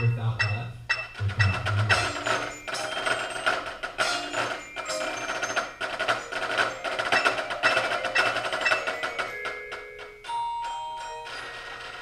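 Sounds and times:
tenor drums: 0.0 - 10.0
mallet keyboards ringing: 0.0 - 12.0.

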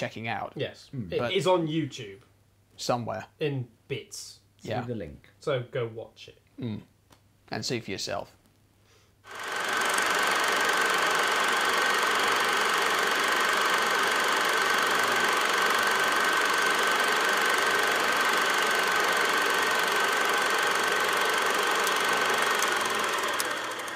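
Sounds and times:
mechanical running noise: 9.3 - 23.9.

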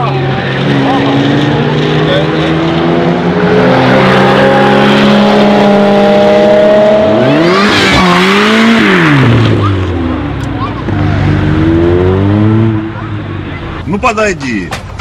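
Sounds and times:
car engine revving: 0.0 - 13.9.

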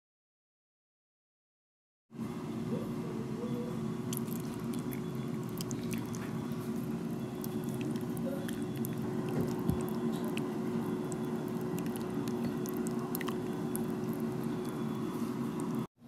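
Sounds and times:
steady low hum: 2.2 - 15.9
cream pouring over food: 4.1 - 14.8.

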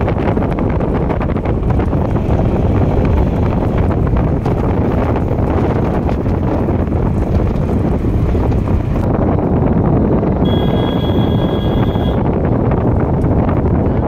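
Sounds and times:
vehicle rumble: 0.0 - 14.0
wind buffeting microphone: 0.0 - 14.0
faint high tone: 10.4 - 12.2.

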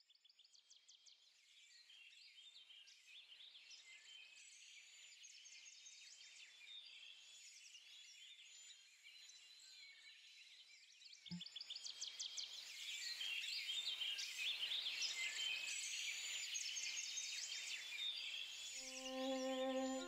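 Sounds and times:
small birds chirping: 11.4 - 20.0.

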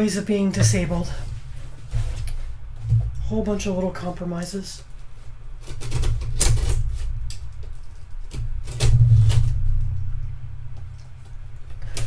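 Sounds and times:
heavy bump: 0.6 - 3.6.

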